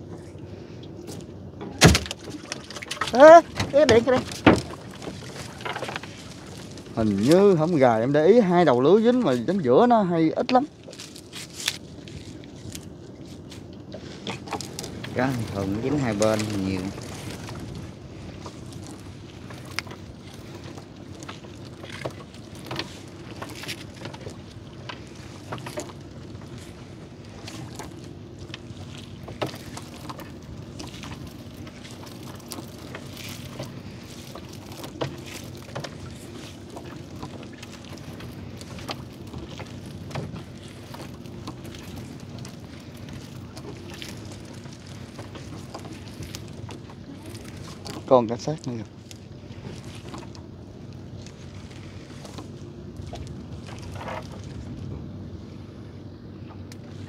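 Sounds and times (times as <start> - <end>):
steady low hum: 0.0 - 57.0
net knocking against hull: 1.6 - 6.1
small splashes: 1.8 - 7.8, 10.8 - 54.8.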